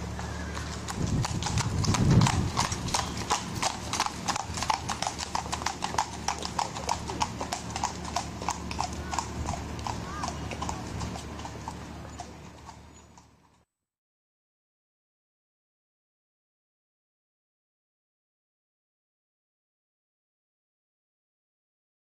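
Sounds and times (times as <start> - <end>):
hooves clip-clopping on pavement: 0.0 - 13.7.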